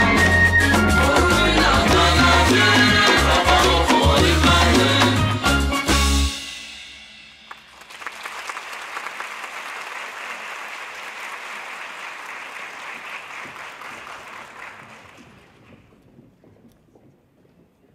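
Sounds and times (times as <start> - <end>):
audience applauding: 7.5 - 15.7.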